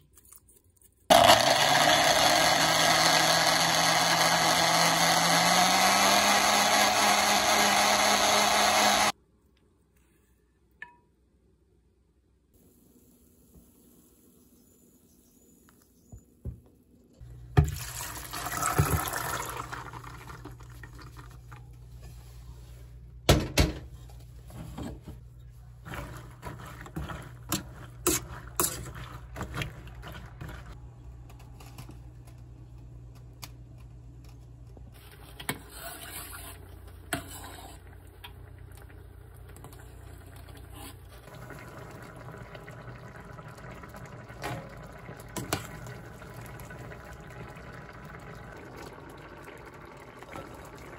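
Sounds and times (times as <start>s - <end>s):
beans boiling in a pot: 17.2s - 21.9s, 25.5s - 30.8s, 34.8s - 50.9s
metal spoon scraping a pot: 25.9s - 29.6s, 35.6s - 37.8s.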